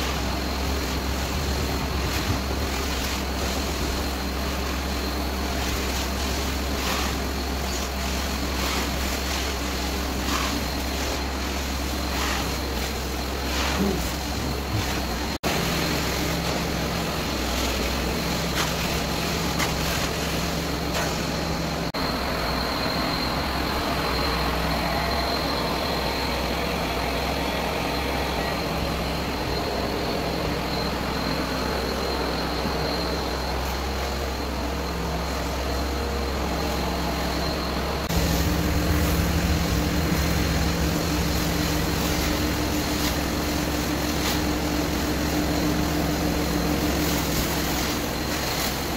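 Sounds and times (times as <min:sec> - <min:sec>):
carpet extraction machine running: 0:00.0 - 0:48.9
spray hissing: 0:38.1 - 0:48.9.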